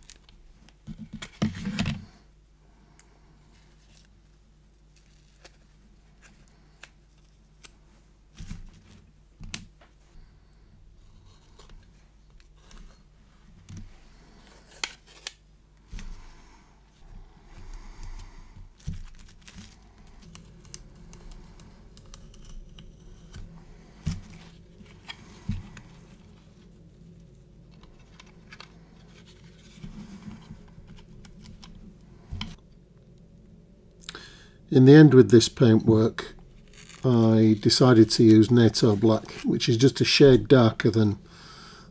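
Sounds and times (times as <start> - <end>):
tape peeling off plastic: 14.7 - 16.1, 36.6 - 37.2.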